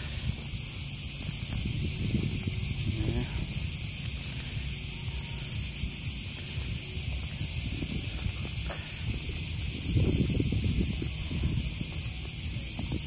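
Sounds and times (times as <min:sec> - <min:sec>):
high-pitched insect chorus: 0:00.0 - 0:13.0
wind rumbling on microphone: 0:00.0 - 0:13.0.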